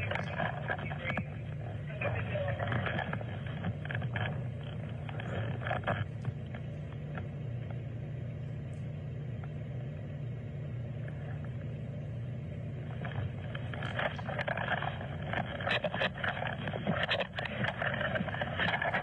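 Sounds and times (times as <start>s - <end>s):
scattered clicks: 0.0s - 7.8s, 12.8s - 19.0s
muffled sounds: 0.0s - 19.0s
steady low rumble: 0.0s - 19.0s.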